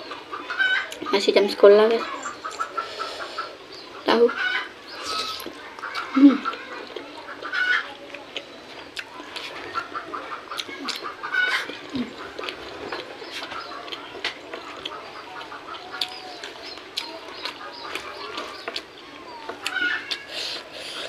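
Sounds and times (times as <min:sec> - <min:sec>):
poultry clucking: 0:00.0 - 0:21.0
person chewing and lip smacking: 0:05.0 - 0:09.6, 0:10.5 - 0:21.0.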